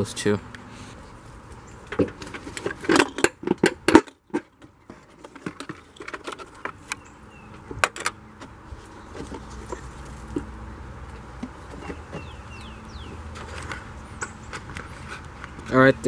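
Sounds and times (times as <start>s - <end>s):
plastic knocking and clattering: 1.9s - 7.0s.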